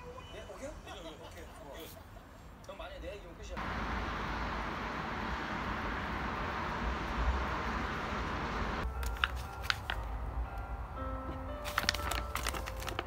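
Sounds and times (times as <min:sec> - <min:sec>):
faint background music: 0:00.0 - 0:02.0
low traffic rumble: 0:00.7 - 0:13.0.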